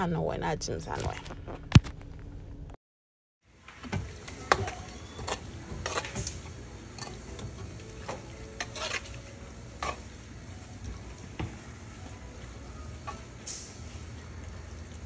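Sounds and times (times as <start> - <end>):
metal spoon scraping a pan: 4.8 - 6.4, 8.1 - 9.2, 9.8 - 10.1.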